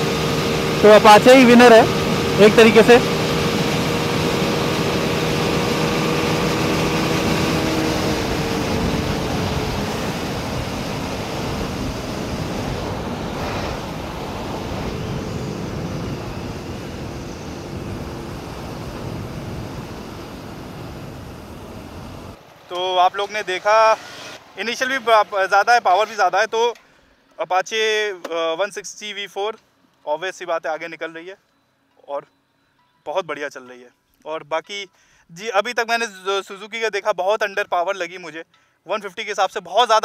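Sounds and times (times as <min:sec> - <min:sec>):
motorcycle engine: 0:00.0 - 0:25.8
wind rushing over microphone: 0:01.9 - 0:22.4.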